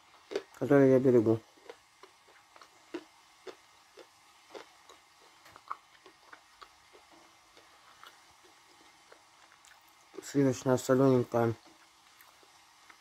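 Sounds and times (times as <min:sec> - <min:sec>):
soft clicks of chewing: 0:01.6 - 0:10.3.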